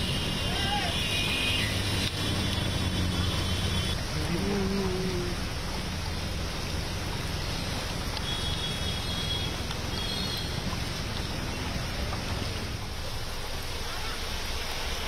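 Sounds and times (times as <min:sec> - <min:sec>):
heavy rain and floodwater: 0:00.0 - 0:15.0
vehicles driving through water: 0:00.0 - 0:15.0.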